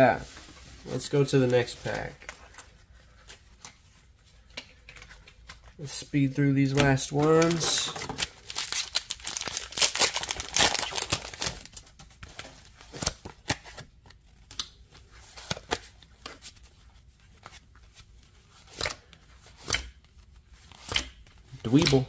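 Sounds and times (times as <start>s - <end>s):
cards rustling: 0.0s - 22.0s
foil wrapper tearing and crinkling: 8.4s - 11.8s.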